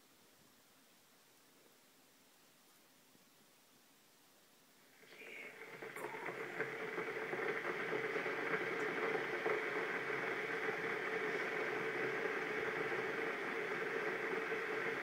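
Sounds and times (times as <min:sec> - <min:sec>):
electric kettle heating water: 0:04.8 - 0:15.0.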